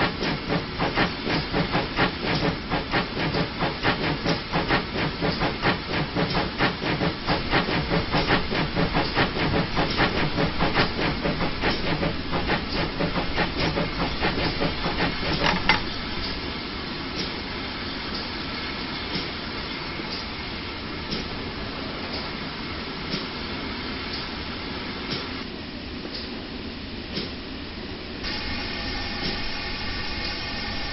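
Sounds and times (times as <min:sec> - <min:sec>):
steam hiss: 0:00.0 - 0:16.5, 0:28.2 - 0:30.9
steam locomotive exhaust chuffs: 0:00.0 - 0:16.6, 0:28.2 - 0:30.9
train rolling: 0:00.0 - 0:30.9.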